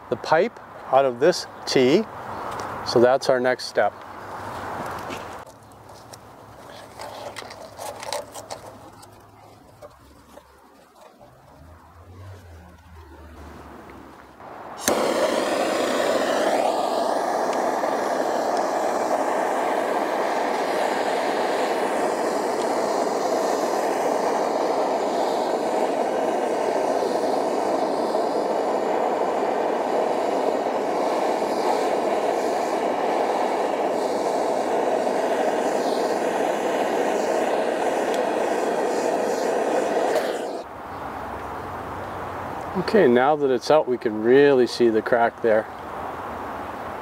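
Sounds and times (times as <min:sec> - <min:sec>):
torch flame roaring: 0:06.5 - 0:40.7.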